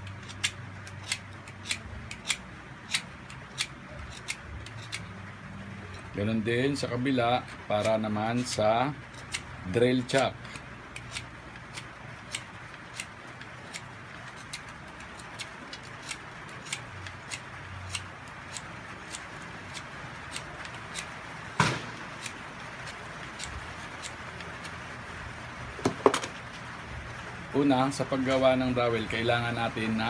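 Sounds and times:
knife whittling wood clicks: 0:00.0 - 0:05.2, 0:07.8 - 0:21.2, 0:21.9 - 0:24.8.

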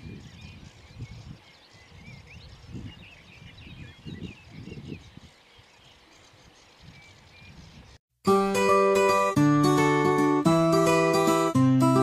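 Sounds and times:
small birds chirping: 0:00.0 - 0:08.0.

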